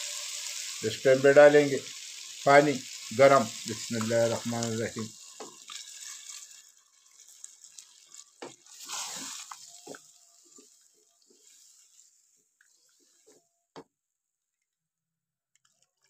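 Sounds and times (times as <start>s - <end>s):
water pouring and splashing: 0.0s - 13.2s
wooden spoon stirring stew: 5.2s - 13.4s.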